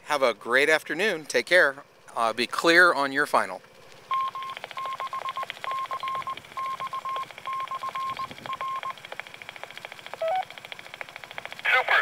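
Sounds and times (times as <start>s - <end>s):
morse code beeps from radio: 4.1s - 9.0s, 10.2s - 10.5s.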